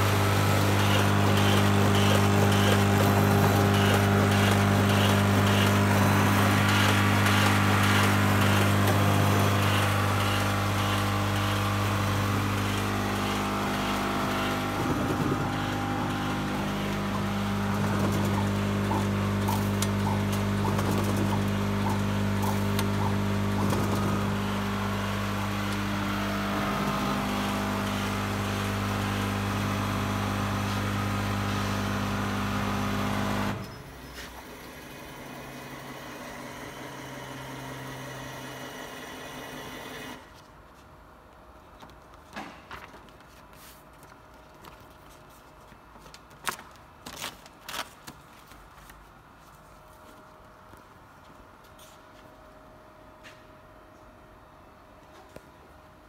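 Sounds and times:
paper folding machine humming: 0.0s - 40.5s, 41.8s - 52.0s
card sheets rustling: 42.7s - 50.3s.

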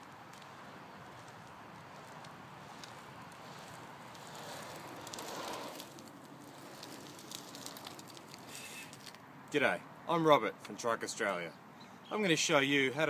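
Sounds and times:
scooter wheels rolling on asphalt: 0.0s - 9.8s.

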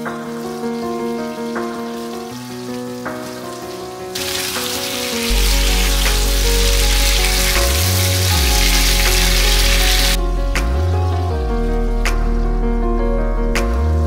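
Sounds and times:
background music: 0.0s - 14.0s
food sizzling in oil: 0.3s - 10.2s
deep bass note: 5.3s - 14.0s.

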